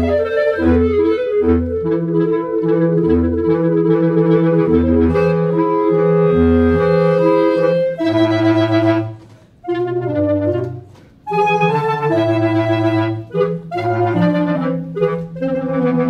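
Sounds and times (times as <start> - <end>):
bass clarinet low notes: 0.0 - 16.0
clarinets playing held notes: 0.0 - 16.0.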